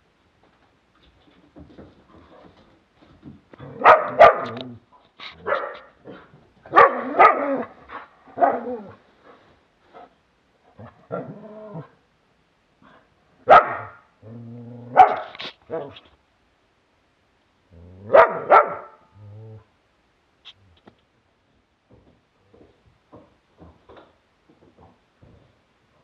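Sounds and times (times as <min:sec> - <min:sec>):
dogs barking in play: 0:03.6 - 0:09.0, 0:13.4 - 0:14.1, 0:14.9 - 0:16.0, 0:18.0 - 0:19.1.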